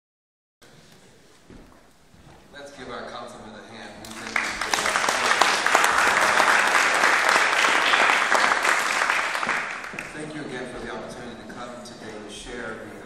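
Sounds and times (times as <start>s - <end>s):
audience applauding: 4.0s - 10.3s.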